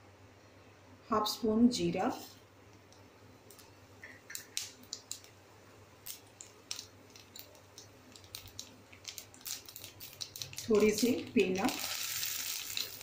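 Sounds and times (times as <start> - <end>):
seeds frying in hot oil: 4.3 - 13.0.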